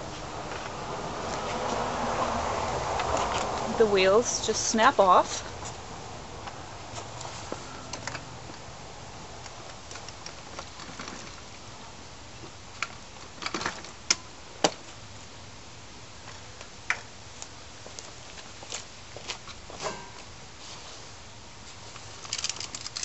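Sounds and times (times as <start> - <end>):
metallic clicks and clacks: 22.0 - 23.0.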